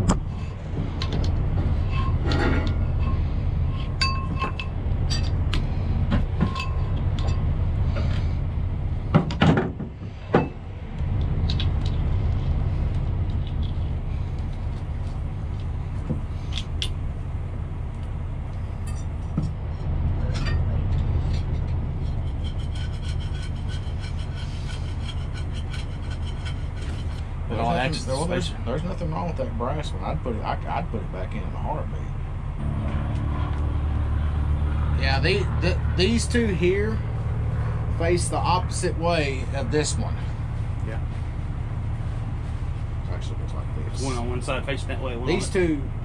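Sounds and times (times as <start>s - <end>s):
metal clanks and knocks: 0.0s - 8.2s, 9.1s - 10.7s
truck engine idling: 0.0s - 46.0s.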